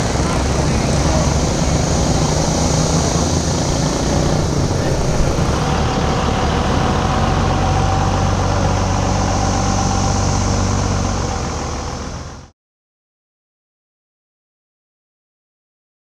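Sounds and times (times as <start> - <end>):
engines passing by: 0.0 - 12.5.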